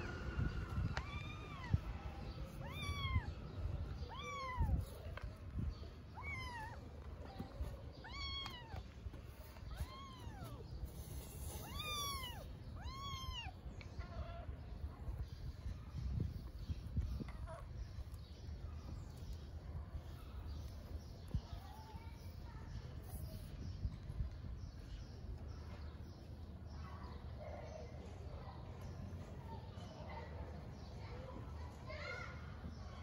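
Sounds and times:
cat meowing: 0:02.5 - 0:05.0, 0:06.1 - 0:08.8, 0:09.6 - 0:10.7, 0:11.5 - 0:13.6.

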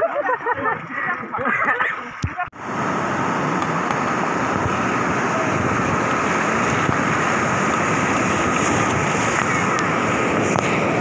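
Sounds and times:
river rapids rushing over rocks: 0:02.6 - 0:11.0.

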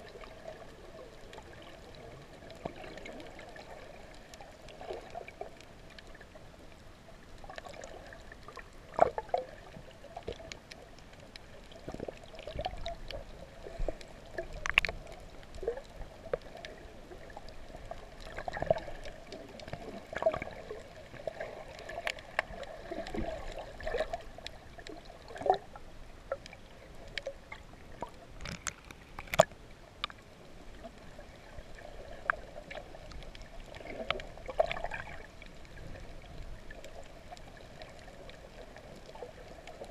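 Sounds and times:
underwater gurgling: 0:00.0 - 0:39.9
sharp clicks and pops: 0:14.4 - 0:15.2, 0:28.0 - 0:30.2.

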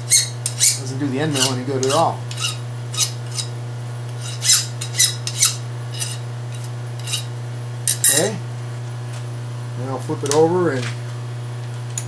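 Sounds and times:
file scraping metal: 0:00.0 - 0:07.3
steady low hum: 0:00.0 - 0:12.0.

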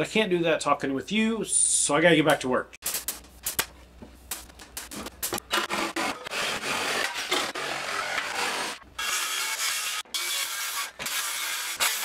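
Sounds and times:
wooden boards scraping: 0:05.0 - 0:08.8.

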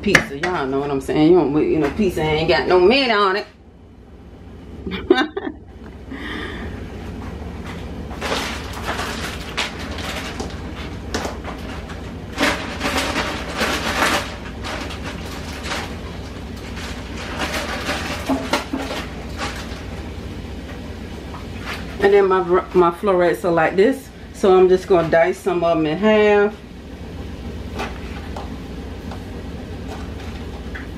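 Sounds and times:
crackly rustling: 0:07.1 - 0:22.1.

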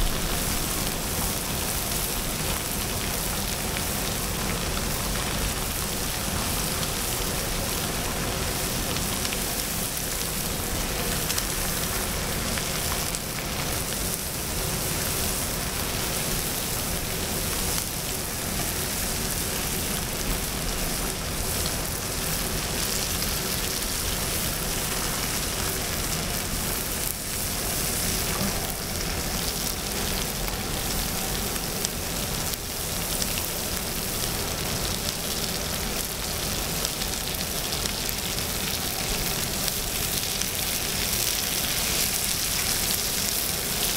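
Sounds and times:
meat and kimchi sizzling: 0:00.0 - 0:43.9.

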